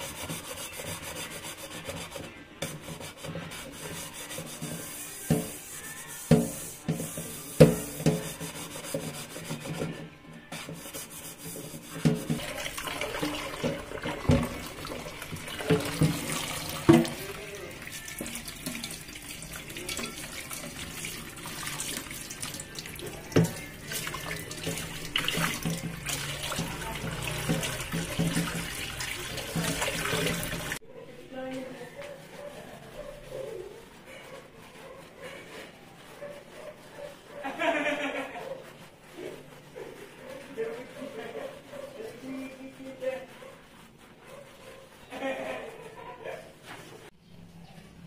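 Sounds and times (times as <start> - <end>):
pan scrubbing: 0.0 - 47.2
pan knocking against sink: 6.3 - 8.4, 11.9 - 17.4, 23.0 - 30.8.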